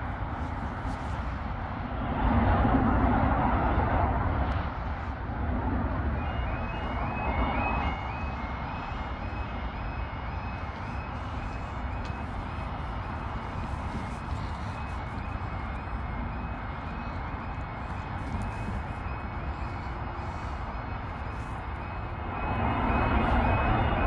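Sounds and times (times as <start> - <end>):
rush of noise: 0.0 - 24.0
level crossing alarm warbling: 6.1 - 24.0.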